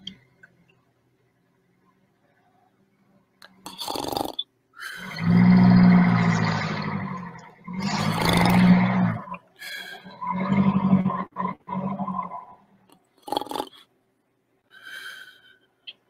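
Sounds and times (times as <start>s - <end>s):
man mock snoring: 3.7s - 4.4s, 7.8s - 9.1s, 13.2s - 13.8s.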